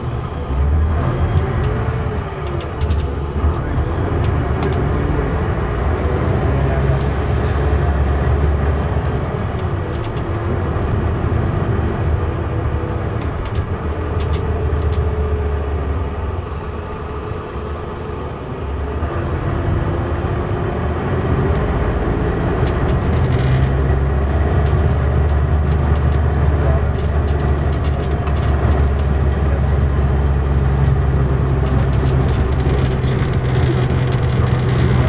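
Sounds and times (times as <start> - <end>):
bus diesel engine drone: 0.0 - 35.0
short clicks and rattles: 2.4 - 4.8, 24.6 - 29.5, 30.8 - 35.0.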